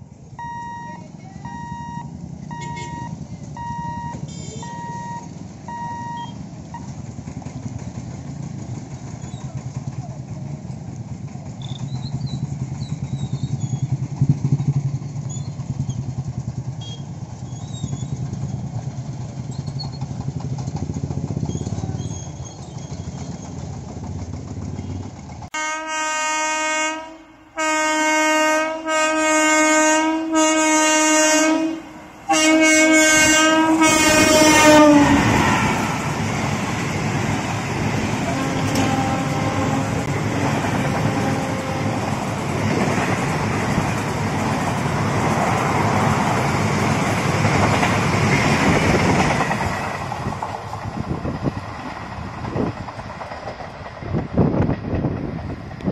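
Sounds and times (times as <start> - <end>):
road vehicle engines running: 0.0 - 25.6, 30.5 - 55.9
train rushing past: 0.0 - 55.9
locomotive horn blasts: 0.4 - 6.4, 24.8 - 36.0, 38.2 - 42.2.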